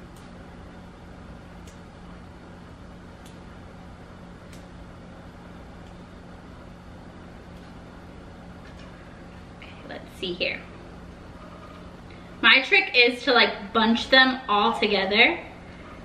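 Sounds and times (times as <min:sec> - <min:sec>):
steady low hum: 0:00.0 - 0:16.0
parsley stems snapping: 0:00.1 - 0:00.4, 0:01.6 - 0:01.9, 0:03.2 - 0:03.5, 0:04.4 - 0:04.8.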